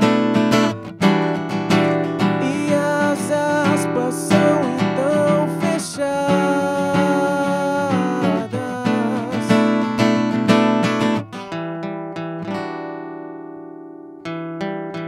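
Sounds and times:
acoustic guitar: 0:00.0 - 0:15.0
man singing: 0:02.2 - 0:10.2.

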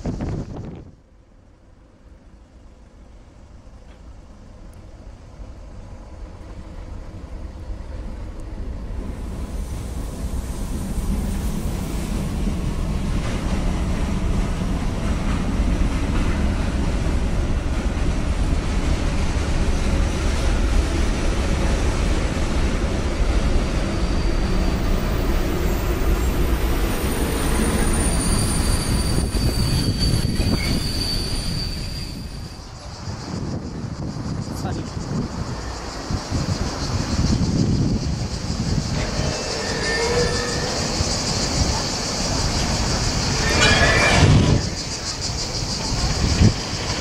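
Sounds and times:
freight train wheels rumbling on rails: 0:00.0 - 0:47.0
high wheel squeal: 0:23.8 - 0:33.6, 0:35.4 - 0:47.0.

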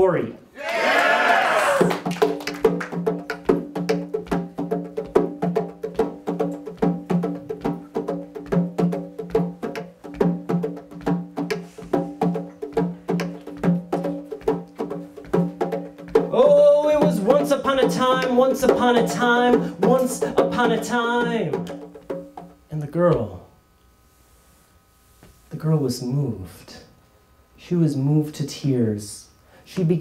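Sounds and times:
hand drum played rhythmically: 0:01.8 - 0:22.6
man singing: 0:16.3 - 0:21.6.

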